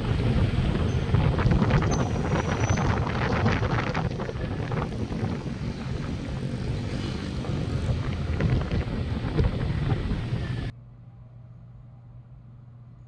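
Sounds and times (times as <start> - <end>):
wind buffeting microphone: 0.0 - 10.7
vehicle engine and road noise: 0.0 - 13.0.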